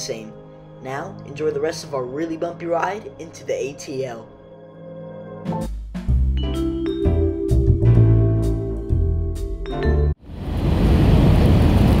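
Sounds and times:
aircraft cabin engine rumble: 10.4s - 12.0s.

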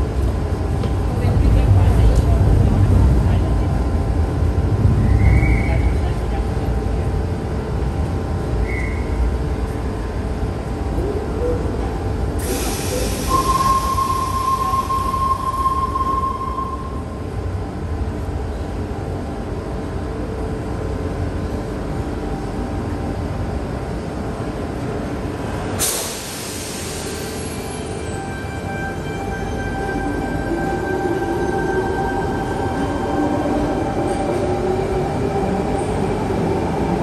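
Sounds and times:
train low rumble: 0.0s - 37.0s
pneumatic doors hissing: 12.4s - 14.0s.

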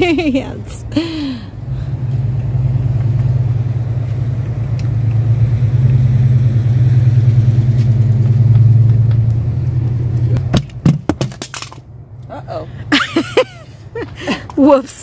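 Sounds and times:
vehicle engine running: 0.0s - 10.6s.

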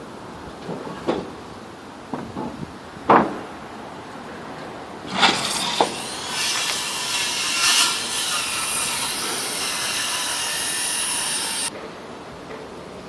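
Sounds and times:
power saw cutting wood: 5.1s - 11.7s.

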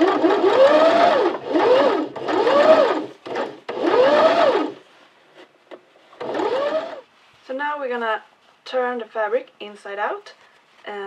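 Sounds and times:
sewing machine motor whining: 0.0s - 4.8s, 6.2s - 7.0s.

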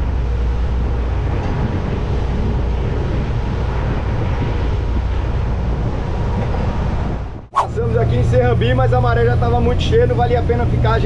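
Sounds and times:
boat engine rumble: 0.0s - 11.0s
water rushing along hull: 0.0s - 11.0s
wind noise on microphone: 0.0s - 11.0s.

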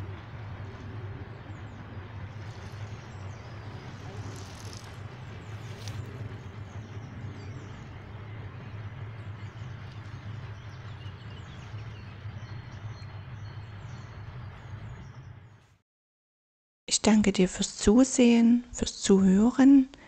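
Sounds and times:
river rumble and hiss: 0.0s - 13.3s
small birds chirping: 0.0s - 15.6s.

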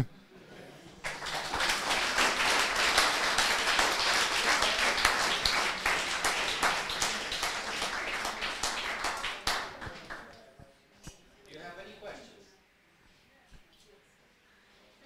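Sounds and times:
audience applauding: 1.0s - 10.4s.

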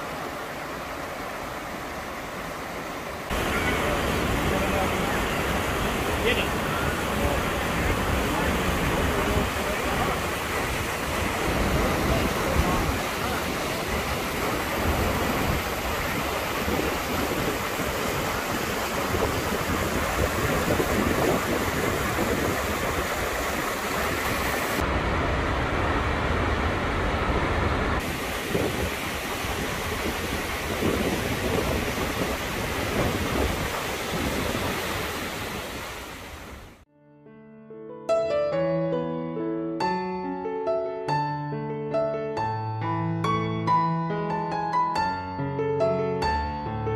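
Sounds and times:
waterfall crashing onto rock: 28.0s - 36.5s.

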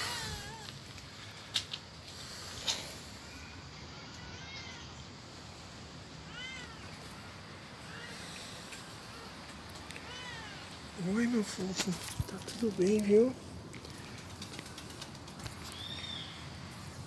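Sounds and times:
cat meowing: 3.9s - 5.0s, 6.3s - 8.4s, 9.1s - 10.7s.

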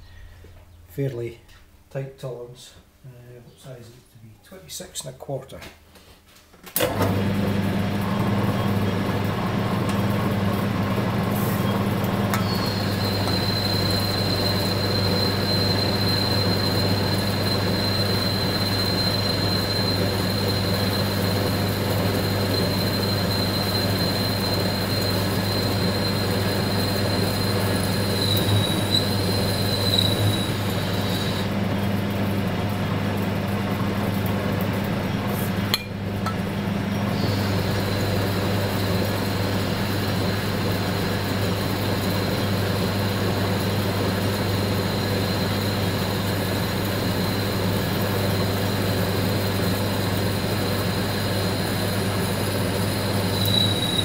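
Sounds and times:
lathe motor hum: 6.8s - 54.0s
high-pitched cutting whine: 11.6s - 31.7s, 35.7s - 54.0s.

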